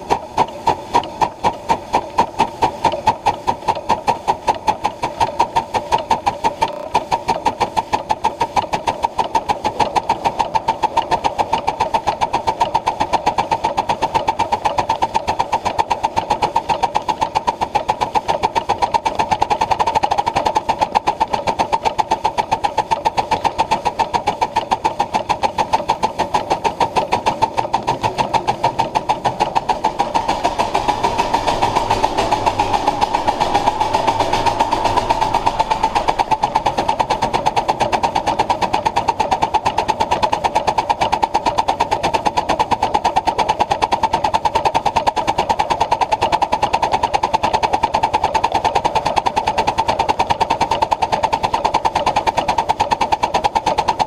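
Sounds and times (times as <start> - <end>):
steam locomotive rapid beat: 0.0 - 54.0
deep rumble: 27.7 - 37.7.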